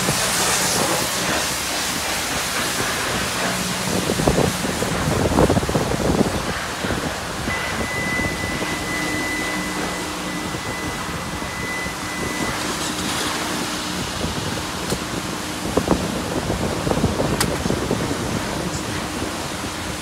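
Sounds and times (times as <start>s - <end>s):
thin high whine: 0.0s - 15.8s
car wash rushing noise: 0.0s - 20.0s.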